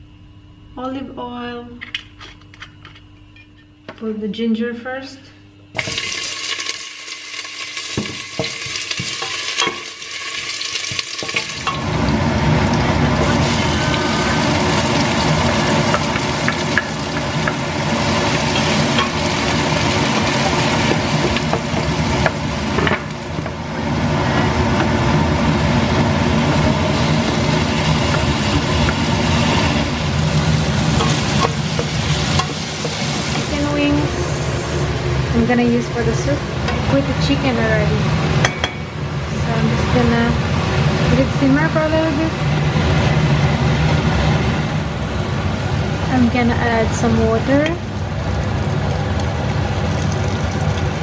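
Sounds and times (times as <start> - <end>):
vegetables sizzling in oil: 5.8 - 38.5.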